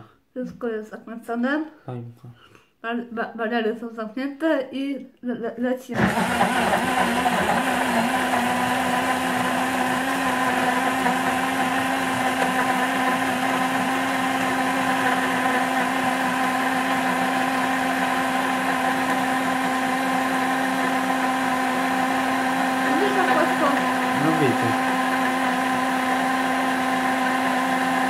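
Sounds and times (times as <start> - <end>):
blender motor humming: 5.9 - 28.0.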